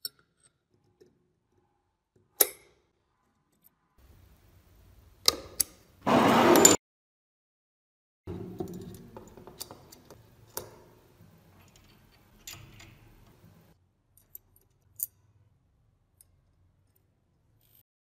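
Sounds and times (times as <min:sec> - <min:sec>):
metal gun parts clicking: 0:11.6 - 0:13.2.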